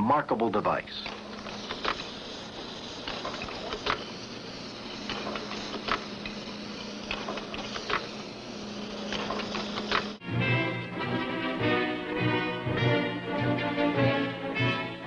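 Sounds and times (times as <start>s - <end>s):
film hiss: 0.0s - 15.0s
music: 10.2s - 15.0s.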